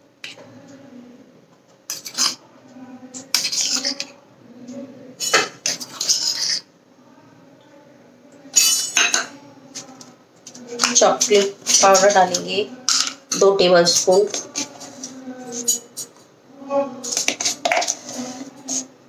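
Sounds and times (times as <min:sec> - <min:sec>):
spoon scraping metal sieve: 0:10.7 - 0:16.1, 0:17.0 - 0:18.9.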